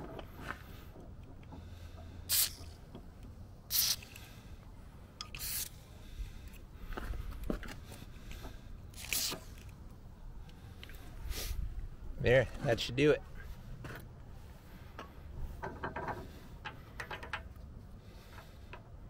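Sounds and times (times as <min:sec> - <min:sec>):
aerosol spray hisses: 0:02.3 - 0:02.6, 0:03.7 - 0:04.0.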